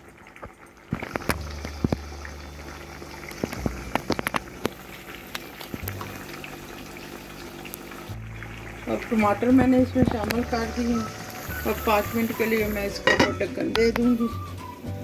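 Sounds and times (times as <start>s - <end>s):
crackles and pops: 0.0s - 11.9s
food frying in oil: 0.0s - 15.0s.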